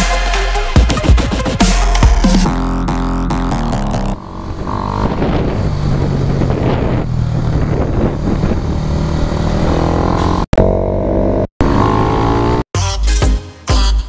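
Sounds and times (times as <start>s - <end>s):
electronic music: 0.0s - 5.1s
motorcycle engine running: 1.0s - 12.7s
road and wind noise: 2.4s - 12.7s.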